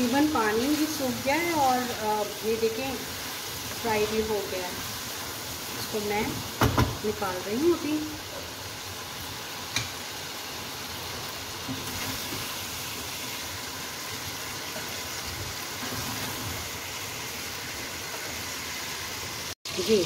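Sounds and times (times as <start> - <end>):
prawns sizzling in hot oil: 0.0 - 20.0.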